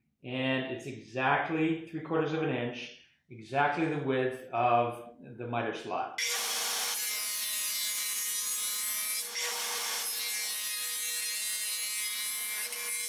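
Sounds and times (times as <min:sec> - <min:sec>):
table saw cutting plywood: 0:06.2 - 0:13.0.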